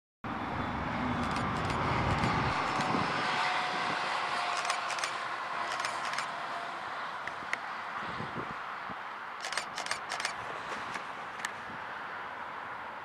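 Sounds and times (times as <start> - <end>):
distant diesel railcar hum: 0.3 - 7.7
camera shutter clicks: 1.2 - 2.9, 4.5 - 6.3, 9.4 - 11.6.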